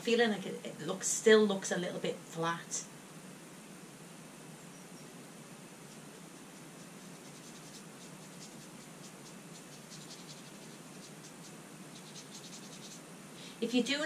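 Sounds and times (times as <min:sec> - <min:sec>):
steady hiss: 0:00.0 - 0:14.0
paintbrush dabbing paint: 0:05.8 - 0:13.1.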